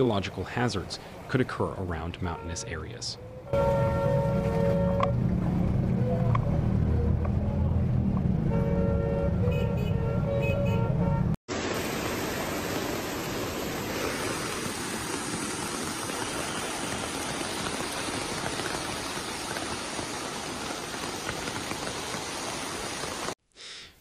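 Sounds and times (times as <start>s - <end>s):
floodwater rushing: 11.5s - 23.4s.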